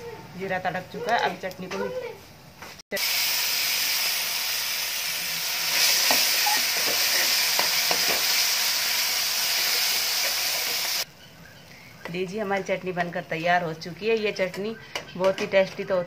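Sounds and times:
hot oil sizzling: 2.9s - 11.1s.

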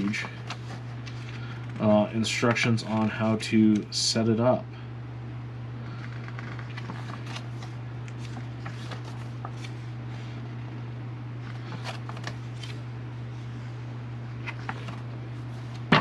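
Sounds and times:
booklet pages turning: 0.0s - 1.8s, 6.0s - 10.4s, 11.4s - 12.8s, 14.4s - 16.0s
low electrical hum: 0.0s - 16.0s.

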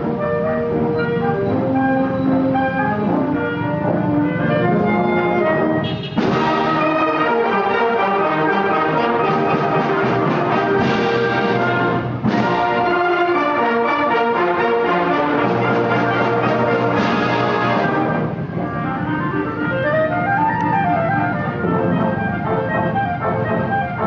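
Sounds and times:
concert band playing: 0.0s - 24.0s.

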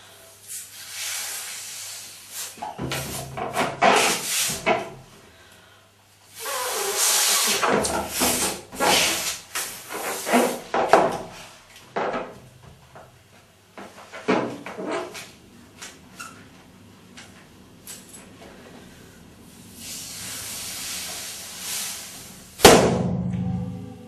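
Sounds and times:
air hissing from balloon: 0.0s - 4.7s, 6.3s - 10.7s, 18.6s - 22.6s
hands squeaking on balloon: 6.4s - 7.6s.

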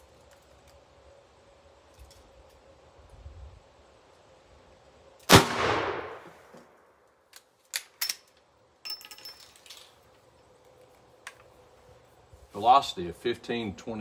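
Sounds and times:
rifle shot: 5.2s - 6.5s.

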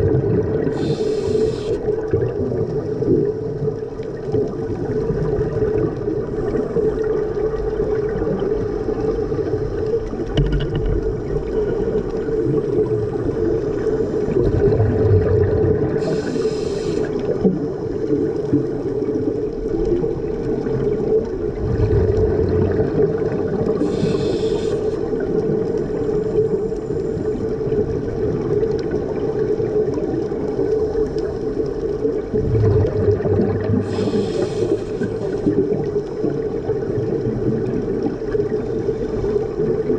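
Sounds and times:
underwater rumble of water and bubbles: 0.0s - 39.9s
scuba regulator breath hissing: 0.6s - 1.9s, 16.0s - 17.3s, 23.8s - 25.2s, 33.8s - 35.6s.

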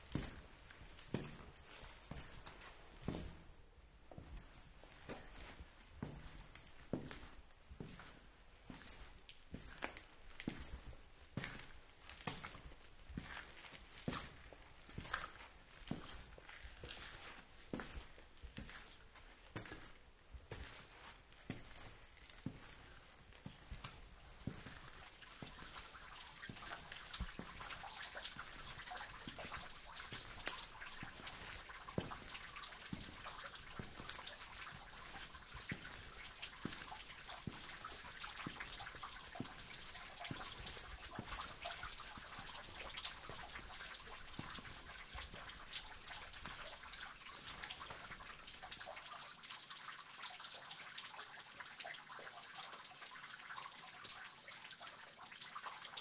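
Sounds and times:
trickle of running water: 0.0s - 56.0s
water drops falling: 23.5s - 56.0s.

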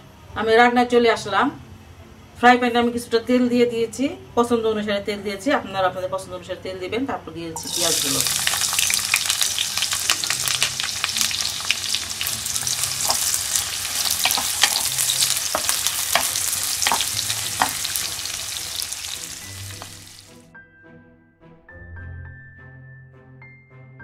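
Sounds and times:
wooden spatula stirring: 7.6s - 20.0s
onions sizzling in hot oil: 7.6s - 20.4s.

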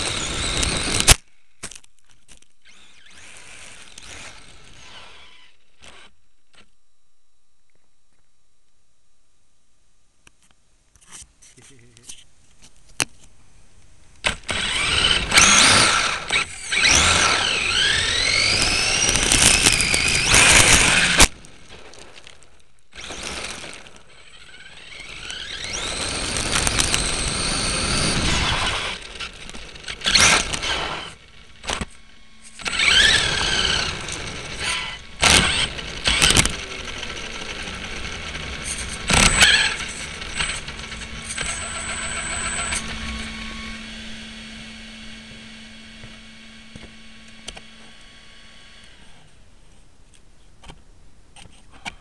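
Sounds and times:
toy truck motor whine: 0.0s - 6.7s, 14.2s - 22.1s, 22.9s - 49.4s.

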